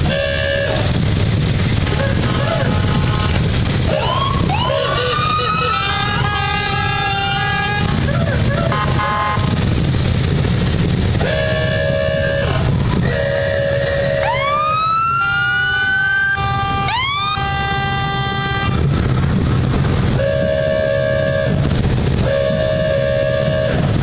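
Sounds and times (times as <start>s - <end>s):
vehicle horn blasts: 0.0s - 0.9s, 1.9s - 4.0s, 4.7s - 9.6s, 11.2s - 14.5s, 16.4s - 18.8s, 20.2s - 24.0s
engines running low: 0.0s - 24.0s.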